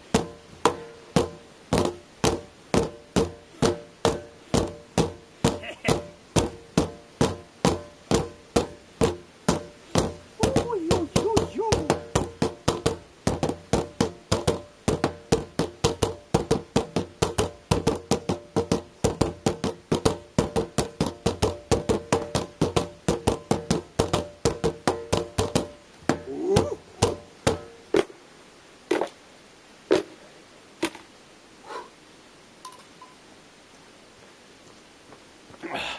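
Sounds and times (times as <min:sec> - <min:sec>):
nunchaku knocking on plastic bins: 0:00.1 - 0:28.1.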